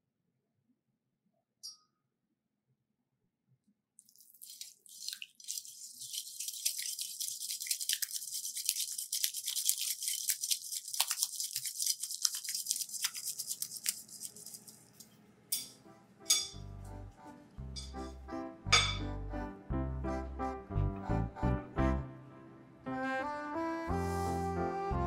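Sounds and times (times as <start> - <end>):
whisk clicking against bowl: 4.4 - 15.7.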